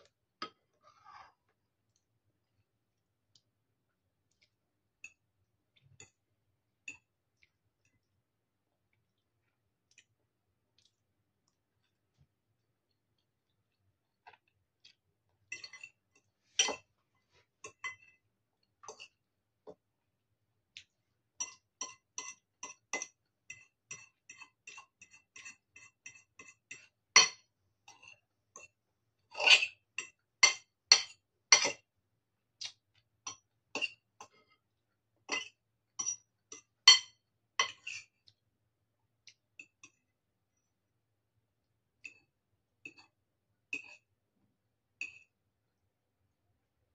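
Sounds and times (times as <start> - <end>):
fork clinking on ceramic bowl: 15.5 - 16.9, 21.4 - 28.7, 35.3 - 38.1.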